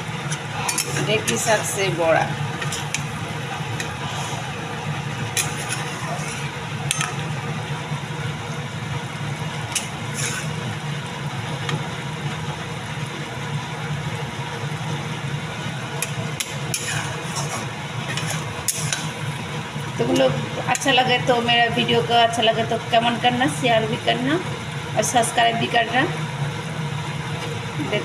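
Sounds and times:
steady low hum: 0.0s - 28.0s
spatula scraping through curry: 5.4s - 6.6s, 10.1s - 10.6s, 16.7s - 19.2s.

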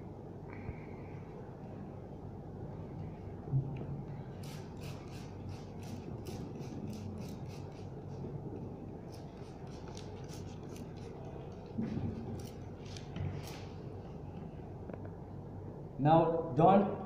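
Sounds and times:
spray bottle spritzing: 4.4s - 7.9s.

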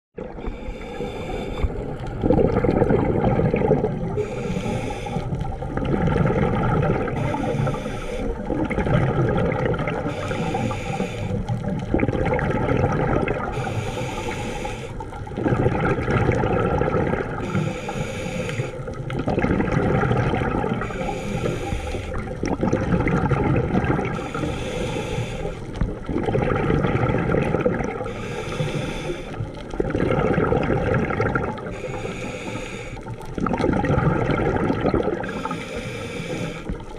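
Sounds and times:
gurgle of exhaled bubbles: 0.2s - 36.9s
regulator inhale hiss: 0.4s - 2.0s, 4.1s - 5.6s, 7.1s - 8.5s, 10.1s - 11.7s, 13.5s - 15.2s, 17.4s - 19.0s, 20.6s - 22.4s, 24.1s - 25.9s, 28.0s - 29.7s, 31.6s - 33.3s, 35.2s - 36.9s.

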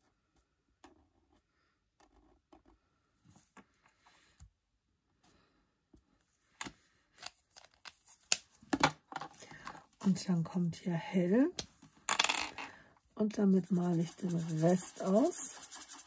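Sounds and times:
marker scratching on cardstock: 13.6s - 16.0s.

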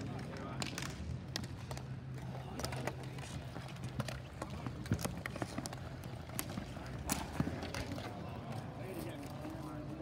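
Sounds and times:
hockey sticks clacking: 0.0s - 9.8s.

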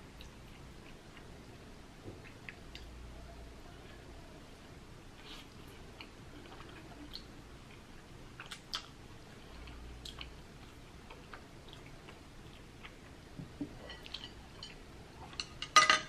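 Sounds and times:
wet chewing and mouth smacks: 5.4s - 13.2s.

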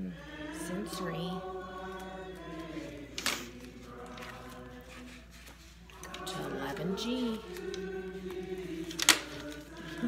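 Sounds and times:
people singing a hymn: 0.0s - 10.0s
page turning rustle: 2.7s - 6.4s, 7.3s - 10.0s.

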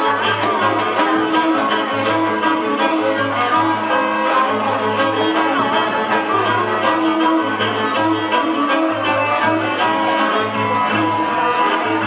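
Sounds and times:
bowed fiddle melody: 0.0s - 12.0s.

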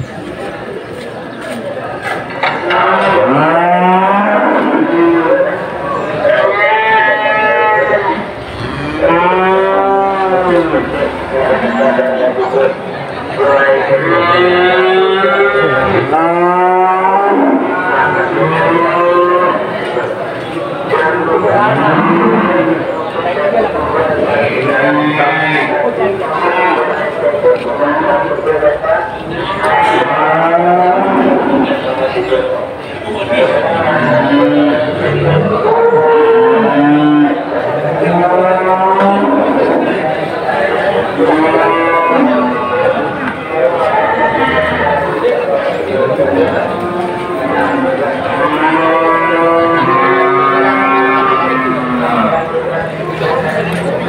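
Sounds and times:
cattle mooing: 2.7s - 5.4s, 6.3s - 12.3s, 21.4s - 22.9s, 33.4s - 45.4s, 46.0s - 53.8s.

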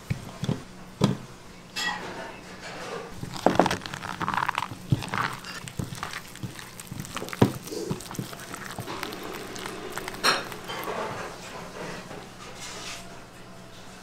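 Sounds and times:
wet squelching of batter: 3.2s - 11.4s.

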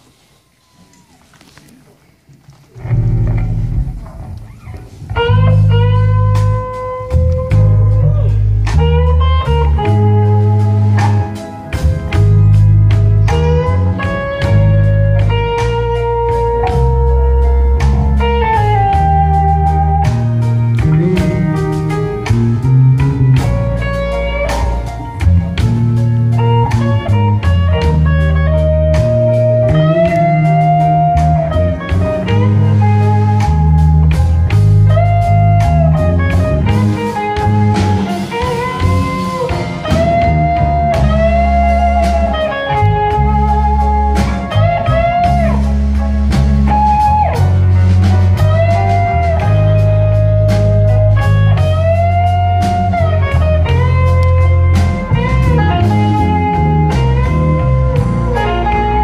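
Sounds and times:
drums: 0.0s - 59.0s
electric guitar lead: 2.6s - 59.0s
bass line: 2.8s - 59.0s.

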